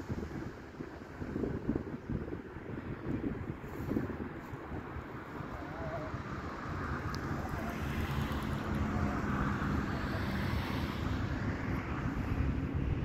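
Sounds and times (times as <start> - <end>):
distant vehicle passing: 5.0 - 13.0.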